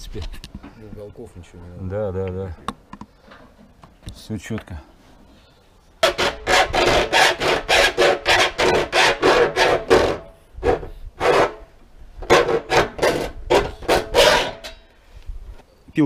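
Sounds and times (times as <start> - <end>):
hacksaw rasping on metal: 6.0 - 14.8.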